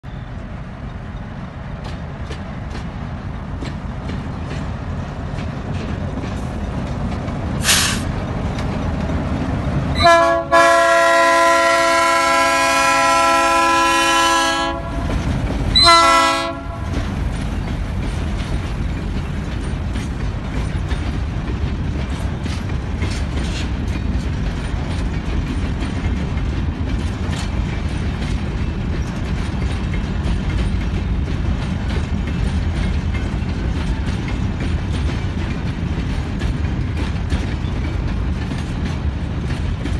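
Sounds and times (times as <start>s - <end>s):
diesel locomotive engines rumbling: 0.0s - 39.9s
train wheels clicking over rail joints: 0.1s - 39.9s
locomotive horn blasts: 10.0s - 15.1s, 15.7s - 17.0s.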